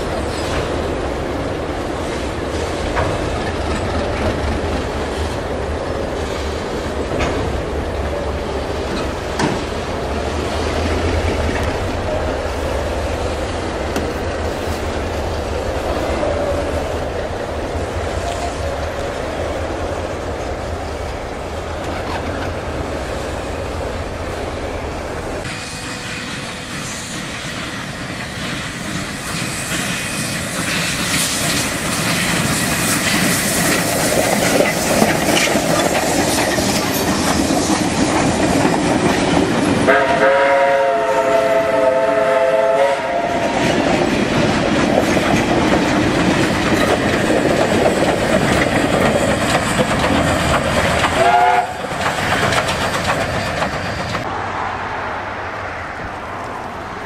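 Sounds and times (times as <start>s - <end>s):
train wheels clattering: 0.0s - 5.5s, 6.1s - 23.2s, 23.8s - 54.3s
steam locomotive whistle: 25.5s - 27.7s, 39.9s - 43.6s, 51.2s - 51.9s.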